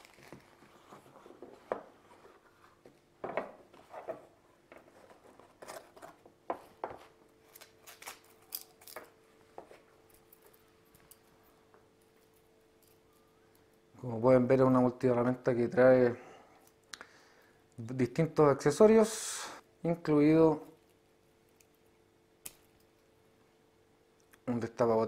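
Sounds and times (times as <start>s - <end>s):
packaging rustling: 0.0s - 2.8s
metal links clicking: 7.6s - 9.1s.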